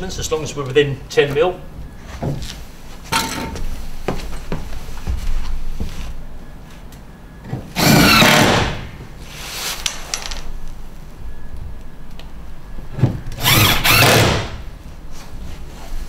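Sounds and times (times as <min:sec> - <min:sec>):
cordless drill running: 0:07.8 - 0:08.8, 0:13.4 - 0:14.6.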